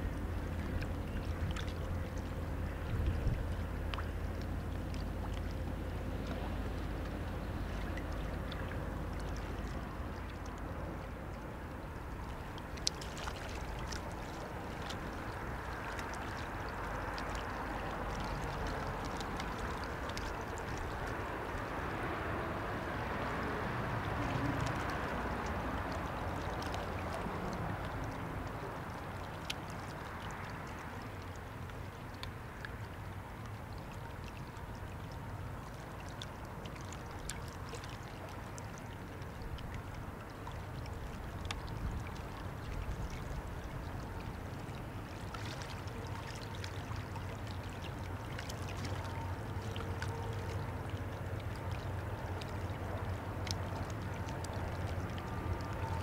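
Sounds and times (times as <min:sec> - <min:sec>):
barge engine drone: 0:00.0 - 0:12.8
river water lapping and splashing: 0:00.0 - 0:56.0.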